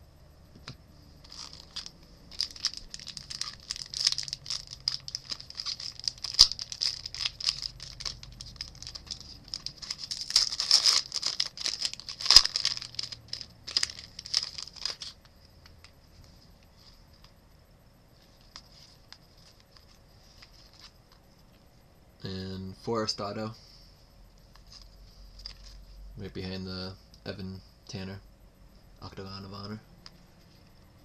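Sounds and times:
foil wrapper crinkling and tearing: 0:01.2 - 0:15.3, 0:18.4 - 0:21.0.

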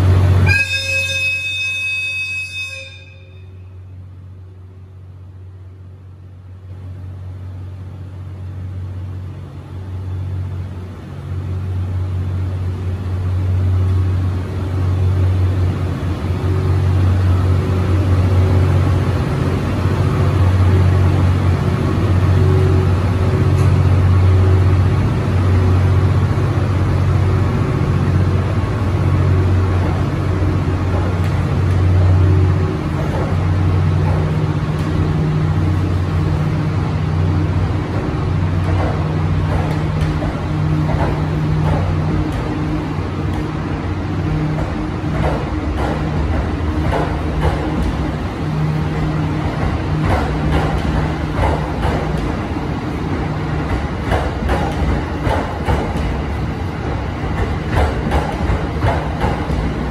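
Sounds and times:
train rumbling past: 0:00.0 - 0:59.9
train horn: 0:00.4 - 0:03.8.

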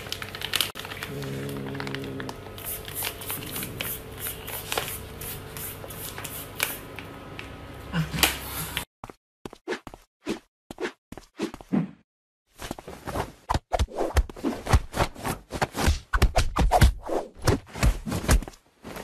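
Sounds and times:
plastic bag crinkling: 0:00.0 - 0:04.9.

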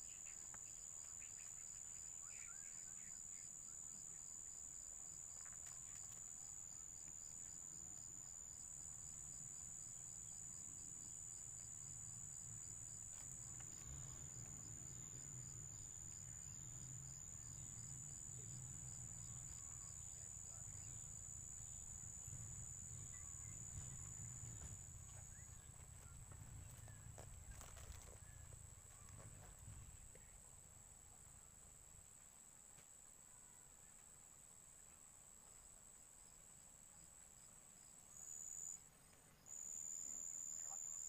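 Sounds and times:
insect rapid chirping: 0:00.0 - 0:25.7, 0:37.8 - 0:41.0
faint low rumble: 0:08.8 - 0:32.2.

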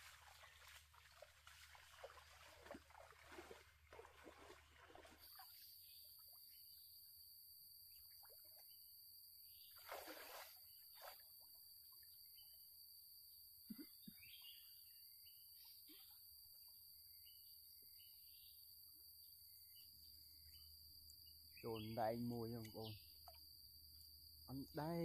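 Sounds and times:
legs wading through water: 0:00.0 - 0:06.1, 0:09.7 - 0:11.3
high insect drone: 0:12.3 - 0:25.0.

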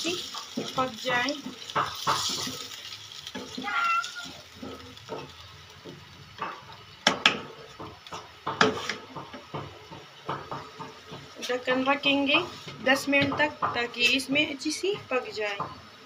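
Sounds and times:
spatula stirring curry in pan: 0:00.0 - 0:13.8
spatula knocking against pan: 0:01.3 - 0:02.6, 0:04.5 - 0:11.9, 0:13.0 - 0:13.9, 0:14.9 - 0:15.8.

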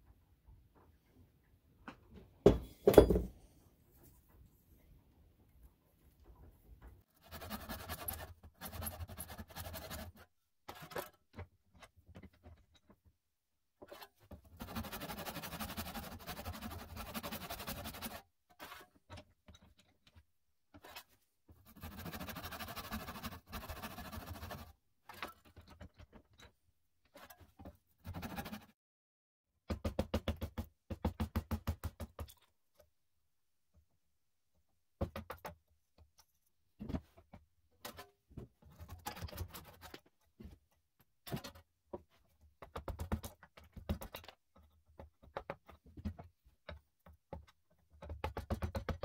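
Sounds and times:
hand saw cutting wood: 0:07.2 - 0:11.2, 0:13.9 - 0:18.9, 0:21.7 - 0:24.7, 0:28.1 - 0:28.7.

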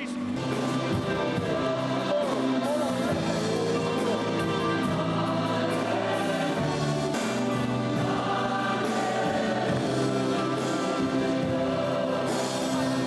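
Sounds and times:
choir singing gospel music: 0:00.3 - 0:13.0.

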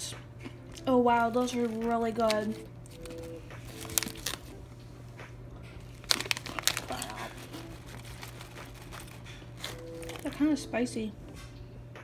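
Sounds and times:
plastic snack bag crinkling: 0:00.7 - 0:04.6, 0:05.8 - 0:10.6.

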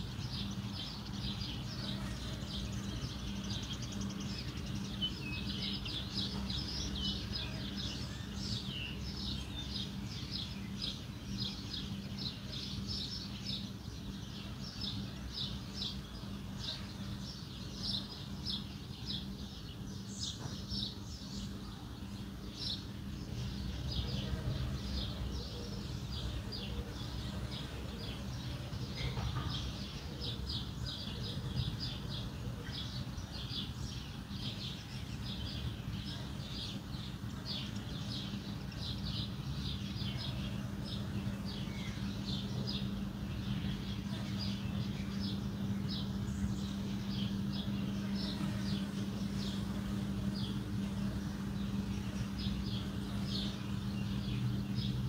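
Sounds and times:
low background hum and rumble: 0:00.0 - 0:55.0
small birds chirping: 0:00.0 - 0:55.0.

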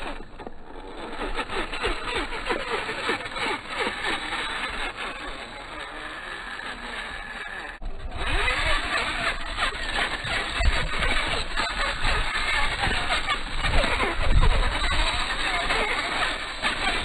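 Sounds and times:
rc car motor whining: 0:00.0 - 0:08.8.

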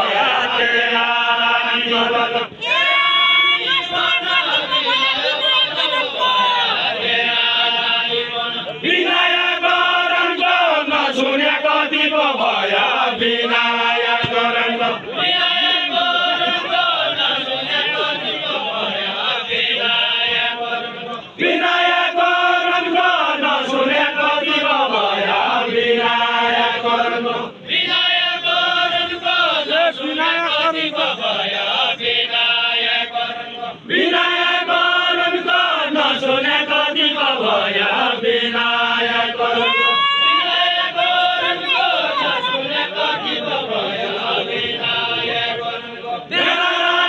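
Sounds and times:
voices chanting a sung verse: 0:00.0 - 0:47.0.

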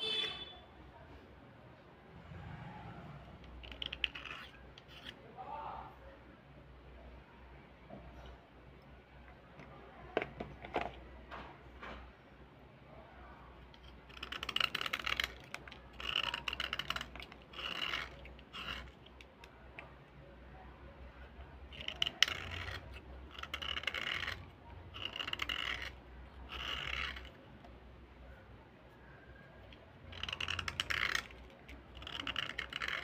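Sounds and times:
metal blade scraping slate: 0:03.4 - 0:05.2, 0:13.8 - 0:19.2, 0:21.8 - 0:27.4, 0:30.1 - 0:33.0.

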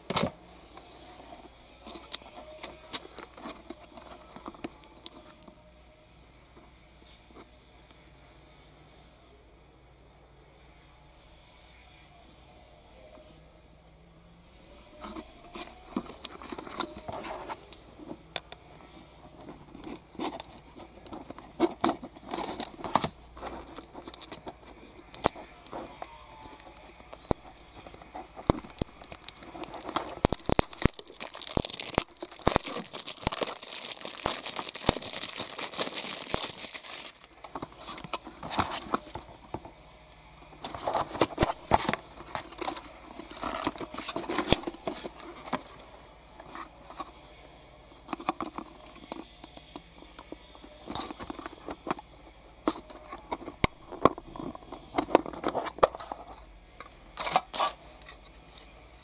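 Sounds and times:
tape seal peeling off: 0:28.4 - 0:37.3.

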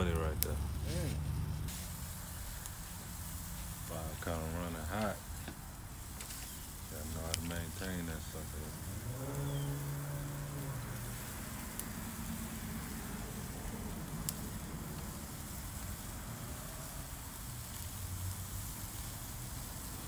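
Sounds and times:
sausages sizzling on grill: 0:00.0 - 0:20.0.

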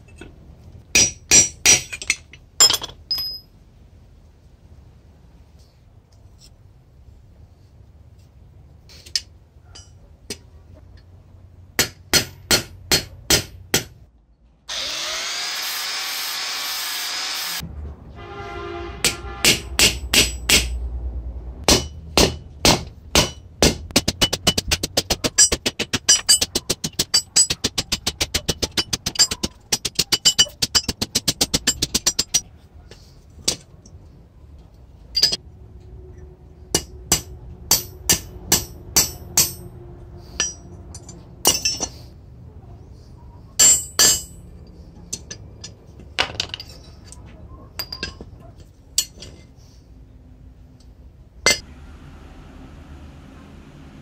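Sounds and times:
hammer striking metal punch: 0:11.8 - 0:14.0, 0:19.0 - 0:20.8, 0:21.6 - 0:32.4, 0:36.7 - 0:39.7, 0:43.6 - 0:44.4.

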